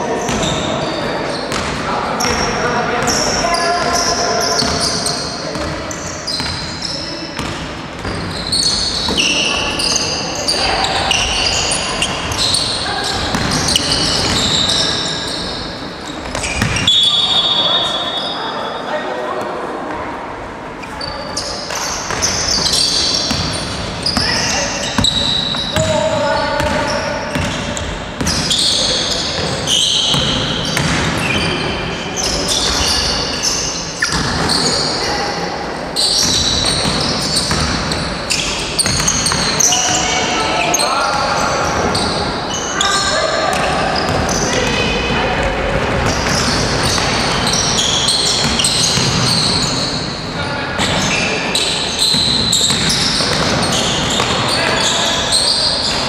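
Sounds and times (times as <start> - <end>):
sneakers squeaking on gym floor: 0.0 - 18.8, 20.8 - 56.0
voices echoing: 0.0 - 56.0
basketball bouncing: 13.2 - 14.6, 16.2 - 16.9, 22.1 - 25.2, 26.6 - 28.5, 30.1 - 31.2, 36.3 - 38.0.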